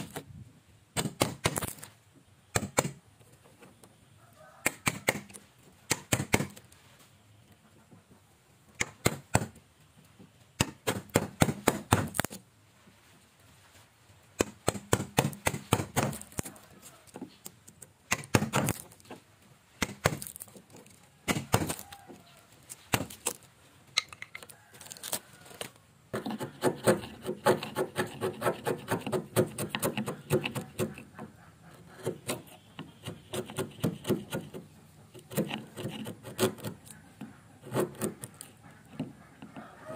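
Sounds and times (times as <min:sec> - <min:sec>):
chisel splitting wood: 0:01.0 - 0:01.9, 0:02.5 - 0:03.0, 0:04.6 - 0:06.7, 0:08.8 - 0:09.6, 0:10.6 - 0:12.4, 0:14.4 - 0:17.3, 0:18.1 - 0:19.1, 0:19.8 - 0:20.6, 0:21.3 - 0:21.8, 0:22.9 - 0:23.4, 0:26.1 - 0:39.6.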